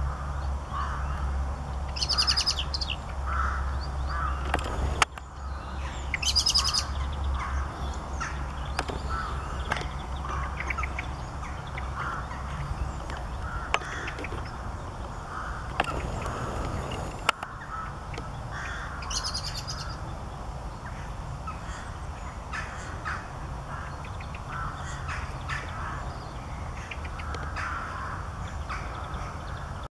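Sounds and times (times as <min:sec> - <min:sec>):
steady low rumble: 0:00.0 - 0:29.4
small birds chirping: 0:00.0 - 0:29.9
rapid high bird trills: 0:05.4 - 0:20.0.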